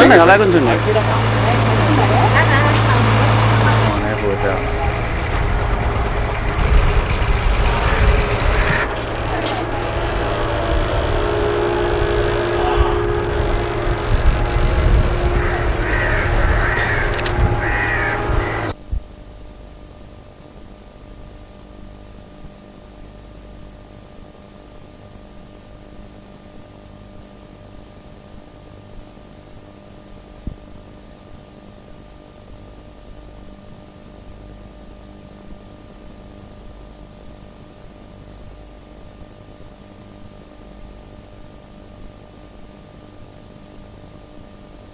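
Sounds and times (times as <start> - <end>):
faint steady tones: 0.0 - 18.8
low electrical hum: 0.0 - 44.9
tape hiss: 0.0 - 44.9.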